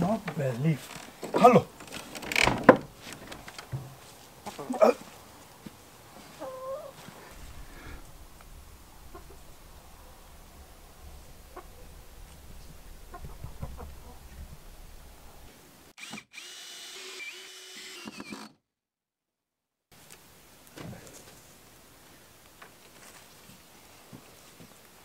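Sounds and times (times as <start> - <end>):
small knocks: 0.3 - 4.0
low rumble: 7.0 - 15.6
cordless drill boring into wood: 16.0 - 18.6.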